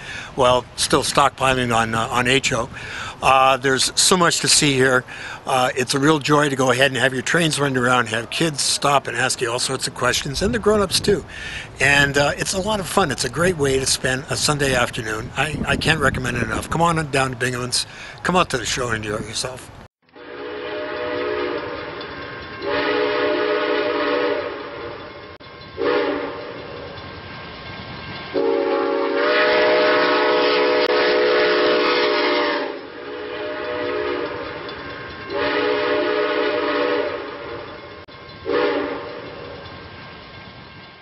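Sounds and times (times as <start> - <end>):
moving train running noise: 0.0 - 41.0
train horn blasts: 20.2 - 25.1, 25.8 - 26.6, 28.3 - 37.7, 38.4 - 39.6.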